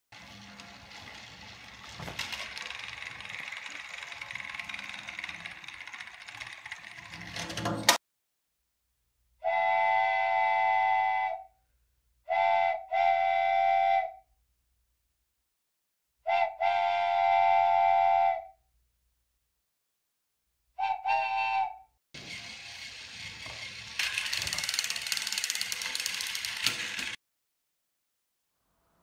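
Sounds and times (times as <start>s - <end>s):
toy train engines whirring: 0.2s - 8.0s, 22.2s - 27.2s
toy trains crashing: 0.2s - 8.0s, 22.2s - 27.2s
steam train whistle: 9.4s - 11.5s, 12.3s - 14.2s, 16.3s - 18.5s, 20.8s - 21.8s.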